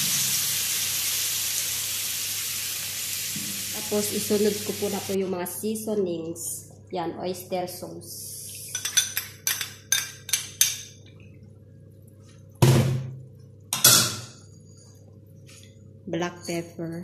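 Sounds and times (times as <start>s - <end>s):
utensil clinking against dish: 8.7s - 11.0s.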